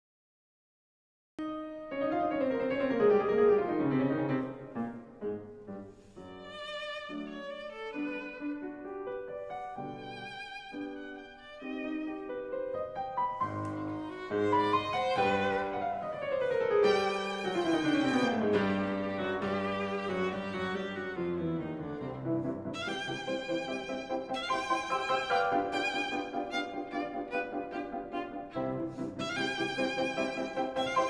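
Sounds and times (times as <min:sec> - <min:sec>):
piano: 0:01.4 - 0:31.0
violin with vibrato: 0:06.3 - 0:08.7, 0:09.8 - 0:12.4, 0:13.5 - 0:31.0.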